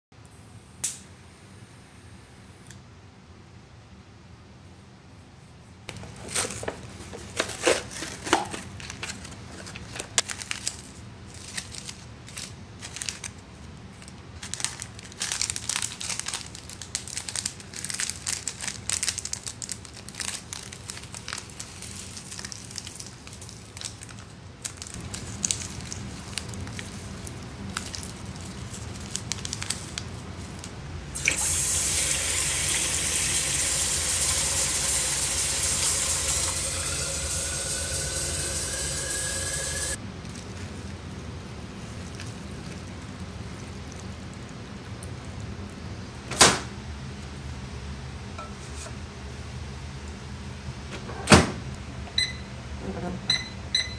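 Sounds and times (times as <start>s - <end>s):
plastic packaging crinkling: 5.9s - 30.8s
water running into sink: 31.2s - 40.0s.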